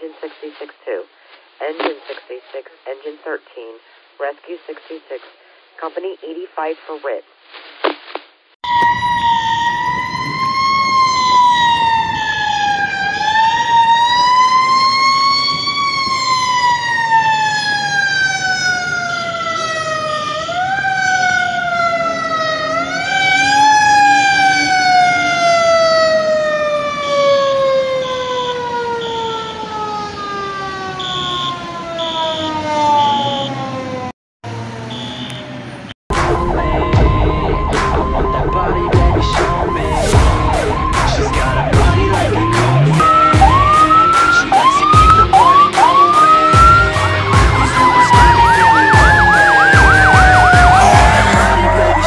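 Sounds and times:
mechanical siren wailing: 8.6s - 52.0s
higher pulsing tone: 36.1s - 52.0s.

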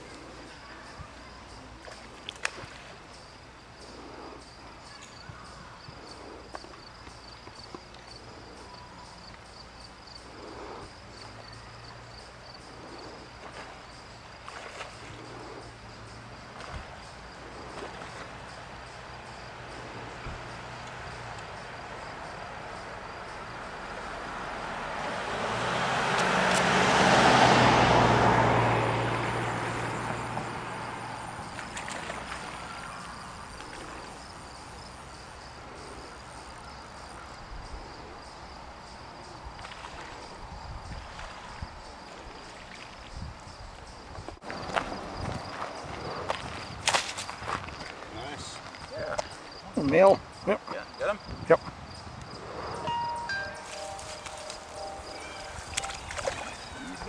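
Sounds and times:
car passing: 12.6s - 37.1s, 51.9s - 57.0s.

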